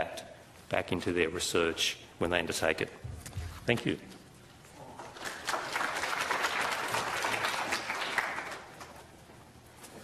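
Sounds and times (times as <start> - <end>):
audience applauding: 5.0 - 9.0.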